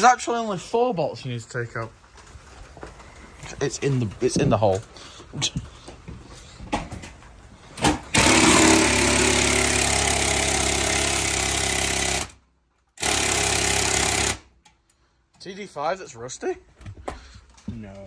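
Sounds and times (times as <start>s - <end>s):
impact wrench hammering: 8.1s - 12.4s, 13.0s - 14.7s.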